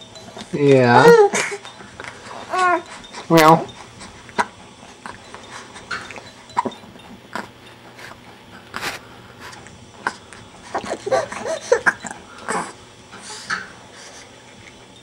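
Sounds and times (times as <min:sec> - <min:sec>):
infants cooing and squeaking: 0:00.8 - 0:08.8, 0:10.0 - 0:13.4
breathy snuffles: 0:07.3 - 0:11.8.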